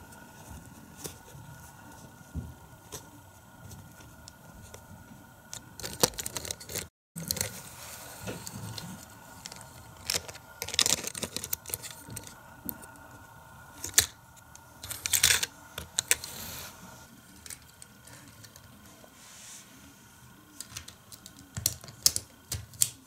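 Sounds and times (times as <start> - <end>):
plastic parts rattling: 5.5 - 7.6, 9.4 - 12.4, 13.8 - 14.2, 14.8 - 16.2
toy car and plastic playset clatter: 5.8 - 7.6, 9.4 - 12.3.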